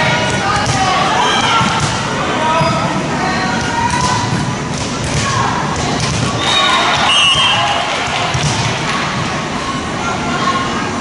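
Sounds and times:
volleyballs thudding: 0:00.0 - 0:02.9, 0:03.6 - 0:09.0.

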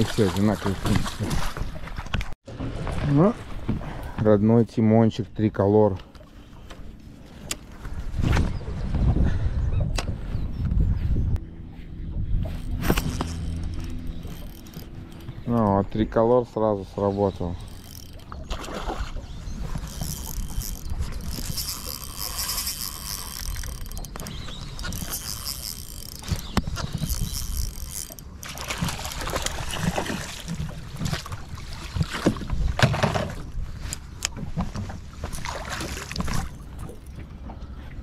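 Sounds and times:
low rumble: 0:07.9 - 0:18.4
fishing tackle clicks and rustling: 0:12.4 - 0:16.0, 0:16.9 - 0:37.6.

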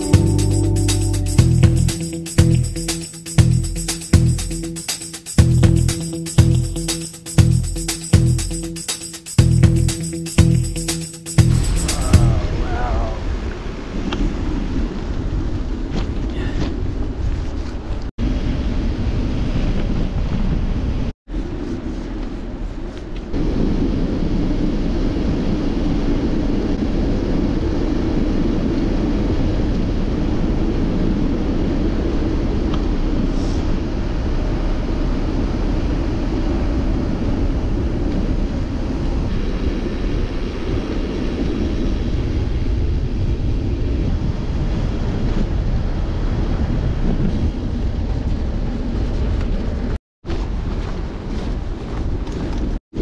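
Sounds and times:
wind buffeting microphone: 0:11.4 - 0:53.0.

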